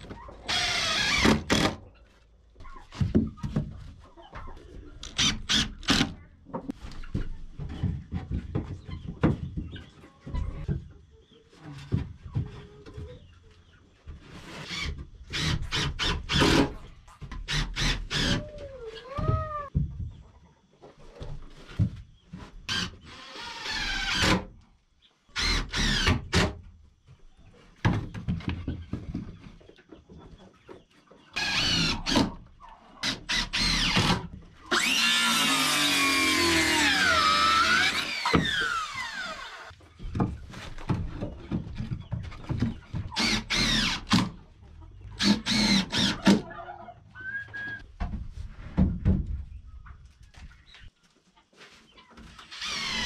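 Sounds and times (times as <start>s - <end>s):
cordless drill driving screws: 0.5s - 1.8s, 31.4s - 32.3s, 33.0s - 39.7s, 43.2s - 44.3s, 45.2s - 46.2s, 52.4s - 53.0s
circular saw cutting wood: 33.0s - 39.7s, 43.2s - 44.2s, 45.2s - 46.4s.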